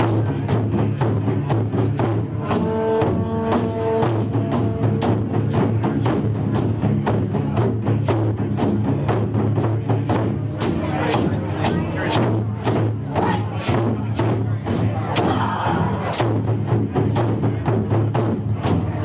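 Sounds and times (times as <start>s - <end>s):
taiko drums: 0.0s - 19.0s.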